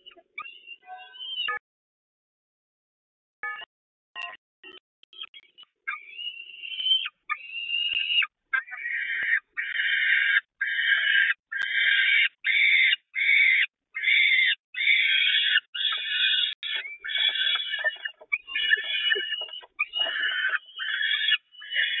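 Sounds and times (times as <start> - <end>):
falcon chicks calling: 5.4 - 22.0.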